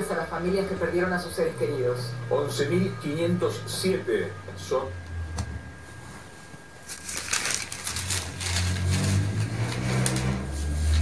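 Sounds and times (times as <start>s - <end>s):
low steady hum: 0.0s - 11.0s
newspaper pages rustling: 5.9s - 11.0s.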